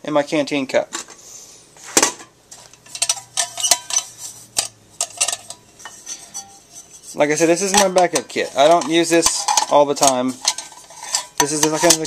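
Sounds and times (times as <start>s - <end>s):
metal cookware clinking: 2.8s - 12.0s.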